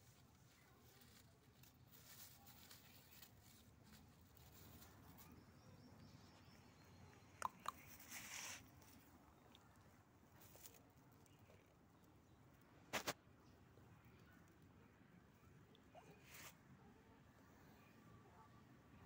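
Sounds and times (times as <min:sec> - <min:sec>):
dry straw rustling under feet: 0:00.0 - 0:05.6, 0:07.8 - 0:11.5.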